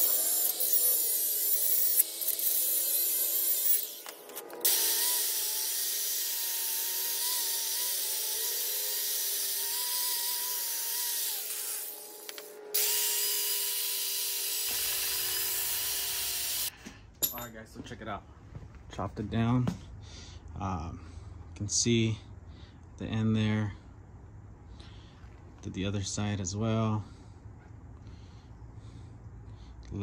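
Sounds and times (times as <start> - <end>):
power tool cutting metal: 0.0 - 16.7.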